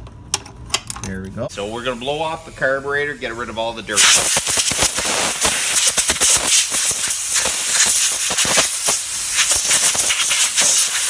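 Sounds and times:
compressed air hissing: 0:03.9 - 0:11.0.

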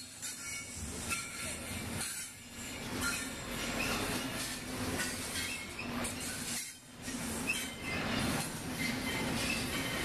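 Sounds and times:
wheels clicking over rails: 0:00.0 - 0:10.0
faint wheel squeal: 0:03.0 - 0:04.4, 0:05.0 - 0:10.0.

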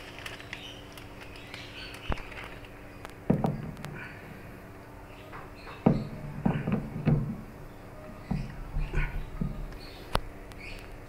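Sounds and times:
machine cover knocking and clunking: 0:03.2 - 0:04.0, 0:05.3 - 0:07.5, 0:08.2 - 0:09.8.

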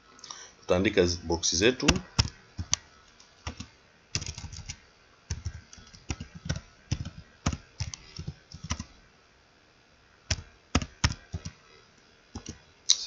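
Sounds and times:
computer keyboard typing: 0:01.8 - 0:08.9, 0:10.3 - 0:11.6, 0:12.3 - 0:12.6.

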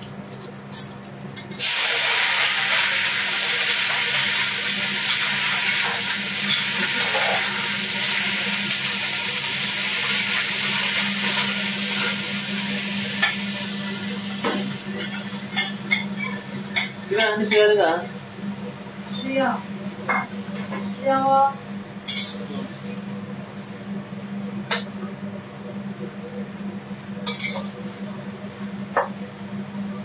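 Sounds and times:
food sizzling in hot oil: 0:01.4 - 0:17.6, 0:27.2 - 0:27.7.

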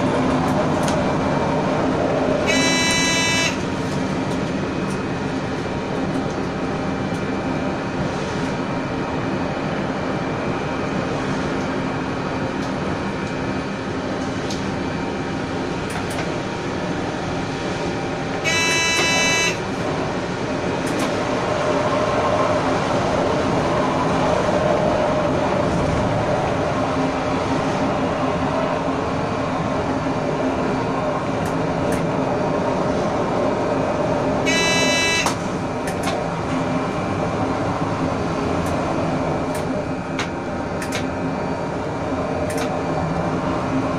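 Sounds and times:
train wheels rumbling on rail: 0:00.0 - 0:43.9
train horn: 0:02.4 - 0:03.7, 0:18.4 - 0:19.7, 0:34.5 - 0:35.4.

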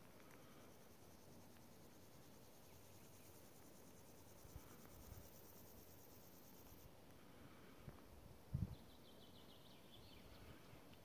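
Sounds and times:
insect chorus chirring: 0:00.0 - 0:06.9.

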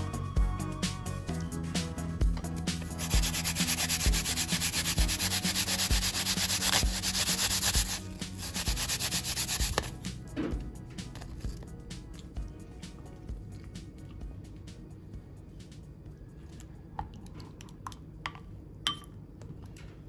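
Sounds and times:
apple grated on plastic grater: 0:02.9 - 0:09.9.

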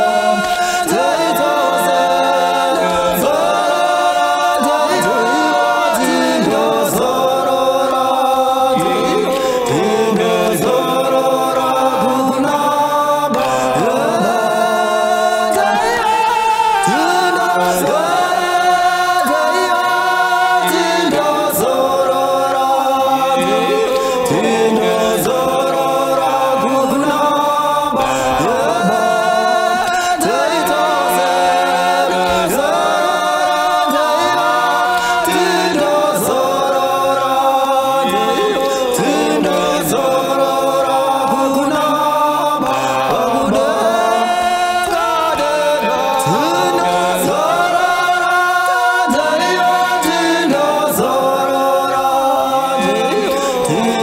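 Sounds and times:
group singing a cappella: 0:00.0 - 0:54.0.

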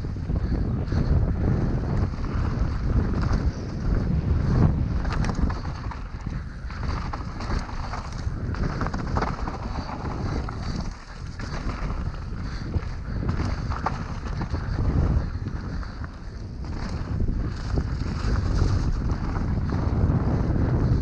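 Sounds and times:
bike rattling over bumps: 0:00.0 - 0:21.0
wind rushing over microphone: 0:00.0 - 0:21.0
tyres rumbling on dirt: 0:01.9 - 0:16.0.

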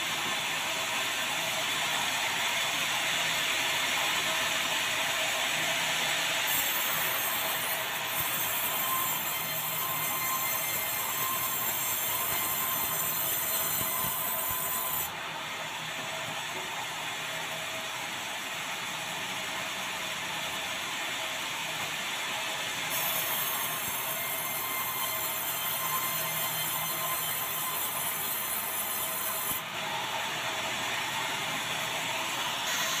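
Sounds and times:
high saw whine: 0:00.1 - 0:16.7, 0:22.9 - 0:33.0
band saw cutting wood: 0:06.4 - 0:15.2, 0:22.9 - 0:30.0, 0:30.8 - 0:33.0.

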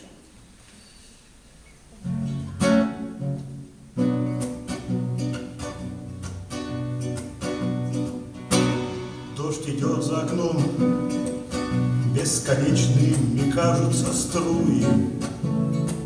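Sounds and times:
acoustic guitar strumming: 0:02.0 - 0:16.0.

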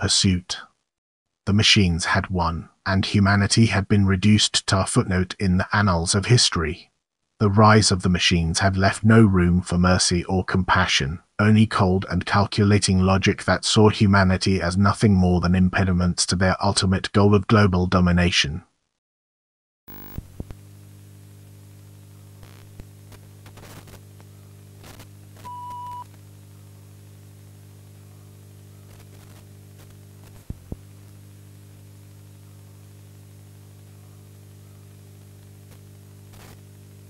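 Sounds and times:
faint static hiss: 0:00.0 - 0:00.8, 0:19.9 - 0:37.0
low electrical hum: 0:19.9 - 0:37.0
short steady beep: 0:25.5 - 0:26.0.

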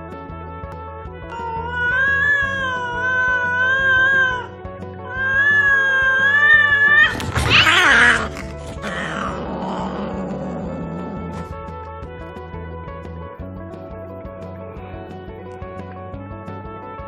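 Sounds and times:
background music: 0:00.0 - 0:17.0
cat screeching and hissing: 0:01.3 - 0:11.6
cats yowling: 0:01.3 - 0:11.6.

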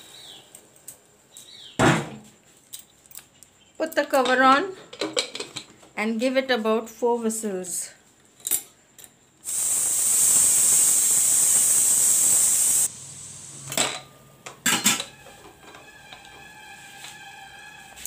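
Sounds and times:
pressure cooker steam hissing: 0:09.4 - 0:13.9
metal lid clanking: 0:13.7 - 0:15.2.

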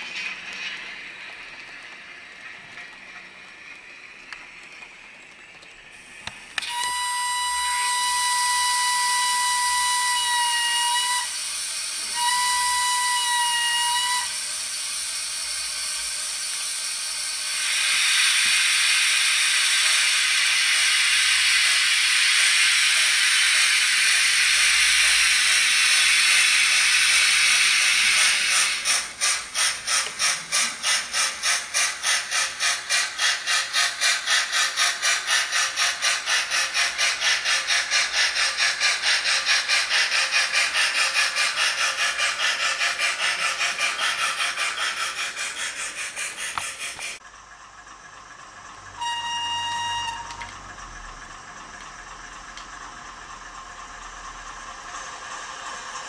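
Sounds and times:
steady steam hiss: 0:00.0 - 0:47.7
rhythmic locomotive chuffing: 0:00.0 - 0:56.0
steam locomotive whistle blasts: 0:06.6 - 0:14.5, 0:49.0 - 0:50.5.

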